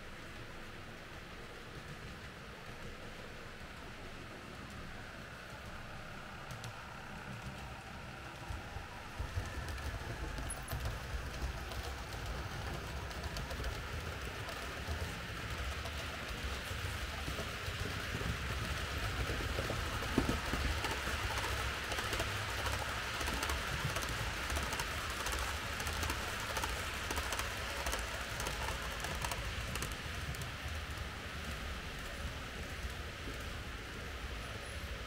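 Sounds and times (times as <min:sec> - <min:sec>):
wheels rumbling on track: 0:00.0 - 0:35.0
model train motor hum: 0:08.3 - 0:34.1.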